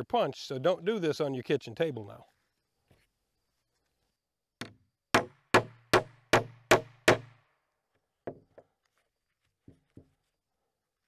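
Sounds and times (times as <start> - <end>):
hammer pounding hole punch: 4.6 - 7.4.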